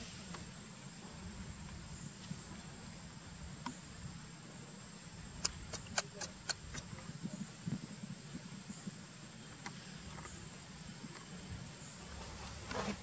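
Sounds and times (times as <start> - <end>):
low outdoor hum: 0.0 - 13.0
sharp clicks: 5.4 - 6.9.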